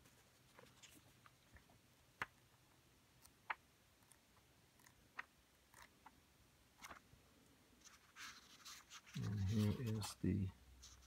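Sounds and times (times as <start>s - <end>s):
thin pages turning: 7.8s - 10.2s.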